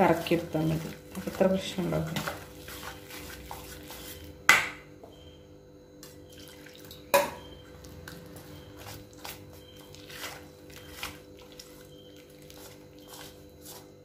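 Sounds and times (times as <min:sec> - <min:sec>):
wire whisk beating batter: 0:00.0 - 0:04.3, 0:08.1 - 0:14.0.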